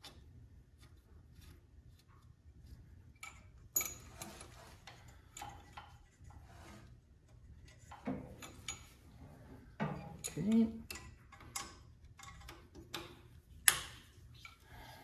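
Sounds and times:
small metallic clicks and taps: 9.8 - 14.6.

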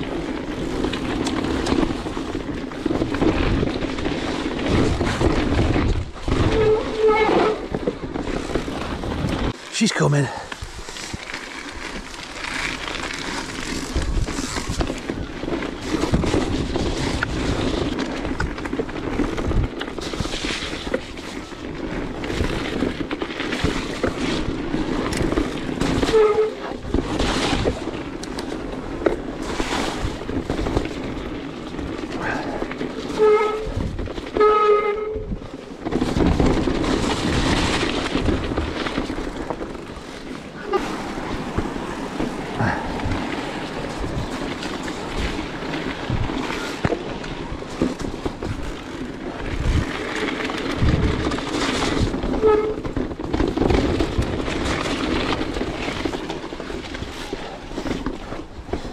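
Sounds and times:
bike rattling: 0.0 - 58.9
tyres rumbling over gravel: 0.0 - 58.9
wind on microphone: 49.4 - 56.2.

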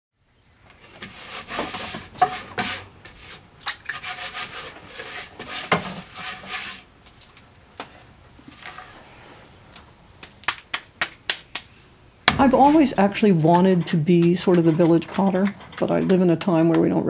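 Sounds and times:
hands scraping clay on potter's wheel: 0.8 - 6.9, 12.4 - 17.0.

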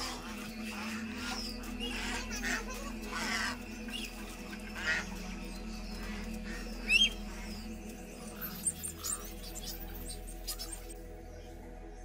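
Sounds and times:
ducks quacking: 0.0 - 7.6
geese honking: 0.0 - 9.4.

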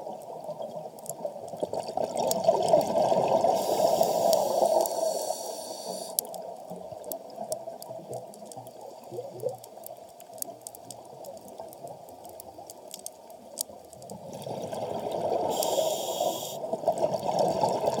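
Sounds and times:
sharp clicks underwater: 0.9 - 14.4.

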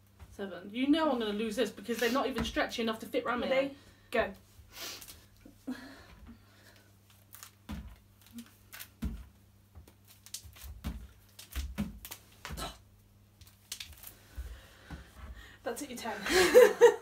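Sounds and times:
elastic bands rustling and clicking: 6.2 - 12.7, 13.3 - 15.4
dull thumps: 7.6 - 8.1, 8.9 - 10.0, 10.6 - 12.8.

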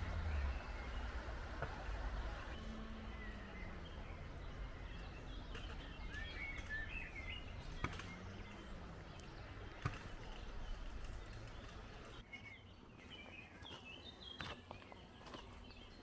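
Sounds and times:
faint low drone: 0.0 - 11.8.

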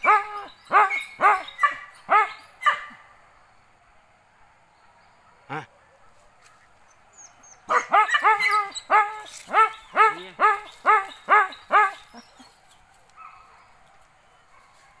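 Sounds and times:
dog barking: 0.0 - 3.0, 7.7 - 12.0, 13.2 - 13.7.

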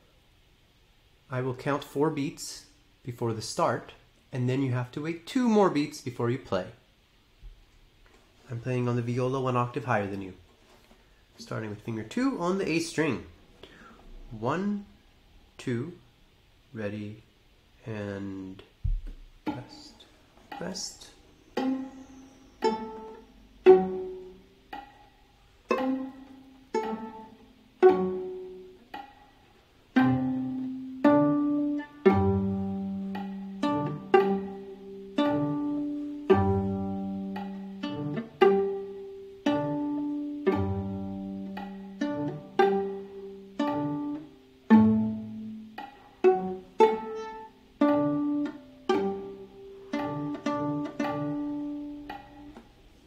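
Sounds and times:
viola plucked pizzicato: 18.3 - 53.0.

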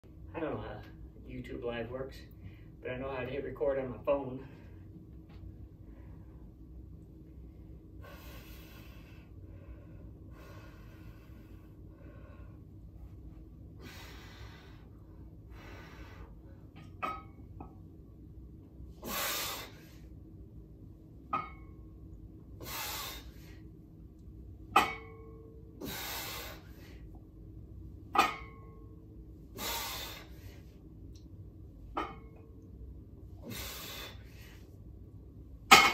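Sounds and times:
man exhaling forcefully: 19.0 - 20.0, 22.6 - 23.6, 25.8 - 27.0, 29.6 - 30.6, 33.4 - 34.6.

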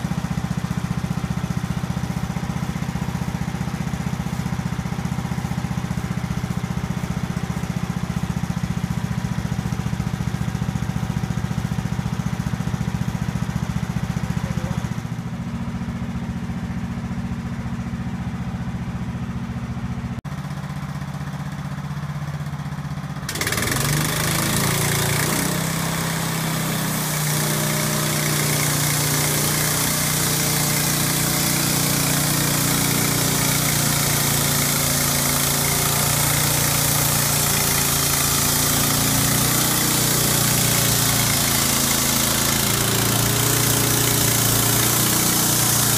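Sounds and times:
sawmill engine running: 0.0 - 45.9
hiss: 33.7 - 45.9.

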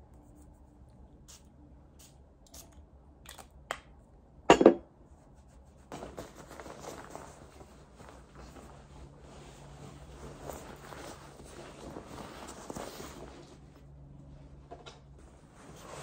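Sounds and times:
jacket rustling: 5.9 - 13.8.

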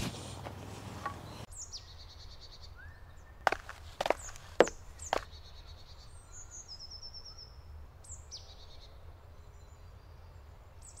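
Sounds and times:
forest birds singing: 1.0 - 11.0
footstep on gravel: 3.5 - 5.3.

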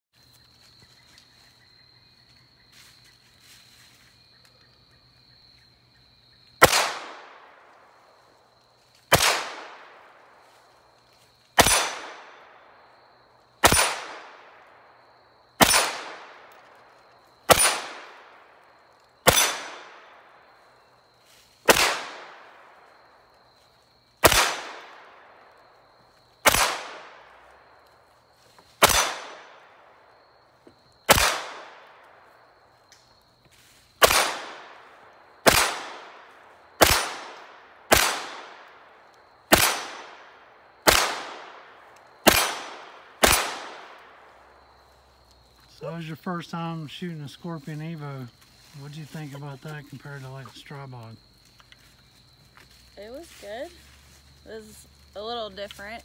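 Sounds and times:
gunshots with echo: 6.6 - 7.4, 9.1 - 9.8, 11.6 - 12.4, 13.6 - 14.4, 15.6 - 16.5, 17.5 - 18.3, 19.3 - 20.1, 21.7 - 22.5, 24.2 - 25.0, 28.8 - 29.6, 31.1 - 31.9, 34.0 - 34.8, 35.4 - 36.2, 36.8 - 38.6, 39.5 - 40.2, 40.8 - 41.6, 42.2 - 44.0.

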